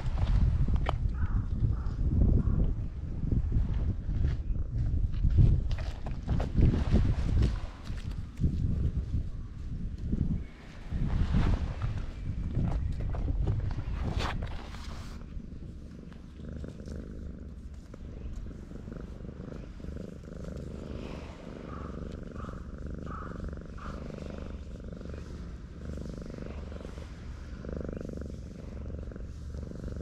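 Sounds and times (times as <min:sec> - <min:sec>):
cat purring: 0:11.8 - 0:30.0.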